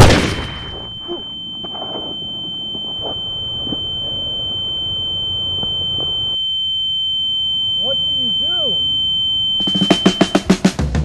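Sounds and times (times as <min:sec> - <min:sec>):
pistol shot tail: 0:00.0 - 0:00.8
high-pitched ringing tone: 0:00.4 - 0:10.6.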